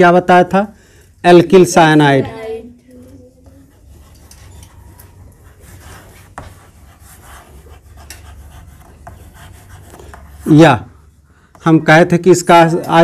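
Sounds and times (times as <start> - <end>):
chalk scratching on blackboard: 3.4 - 10.7
chalk tapping on board: 5.4 - 10.6.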